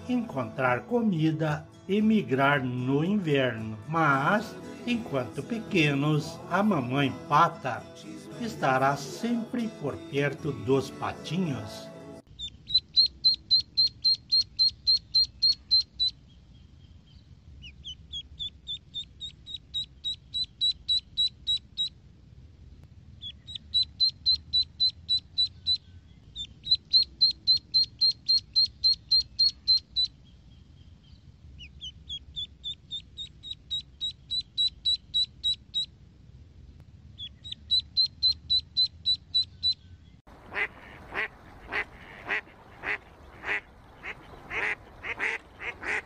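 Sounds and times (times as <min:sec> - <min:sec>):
duckling peeping: 0:12.3 - 0:22.1, 0:23.2 - 0:36.0, 0:37.1 - 0:46.0.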